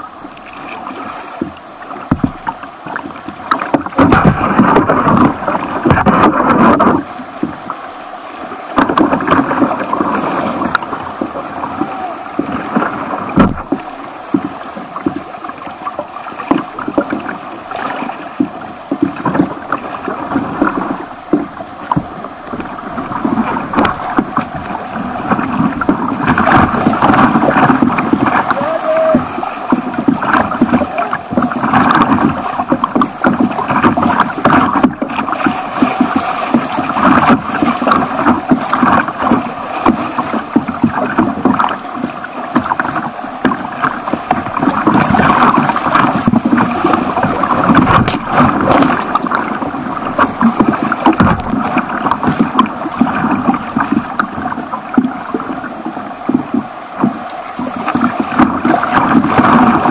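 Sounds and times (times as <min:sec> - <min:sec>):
water splashing against boat: 0:00.0 - 0:59.9
whitewater rushing: 0:00.0 - 0:59.9.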